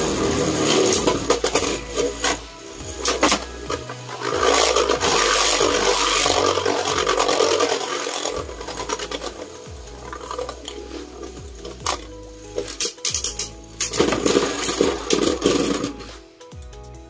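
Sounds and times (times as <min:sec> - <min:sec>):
loud rasping grind: 0:00.0 - 0:12.1
spinning tops whirring and scraping: 0:00.0 - 0:16.5.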